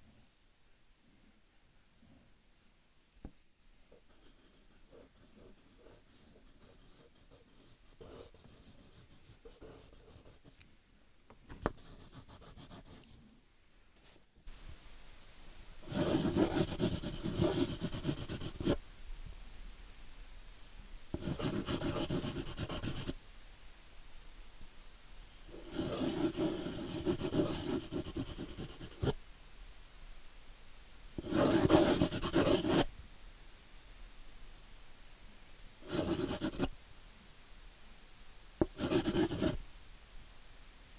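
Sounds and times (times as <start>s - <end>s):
pen scratching on paper: 4.1s - 10.5s, 11.6s - 13.2s, 15.8s - 18.8s, 21.2s - 23.2s, 25.6s - 29.2s, 31.2s - 32.9s, 35.8s - 36.7s, 38.6s - 39.6s.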